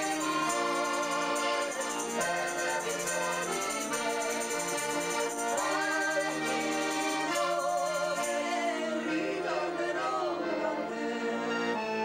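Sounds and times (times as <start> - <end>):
accordion playing chords: 0.0 - 12.0
woman singing: 5.3 - 11.5.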